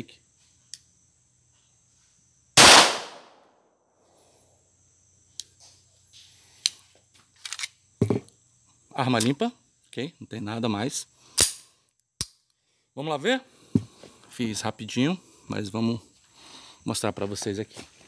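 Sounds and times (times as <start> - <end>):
pistol shot: 2.6 - 3.4
pistol slide metallic clicks: 11.4 - 12.5.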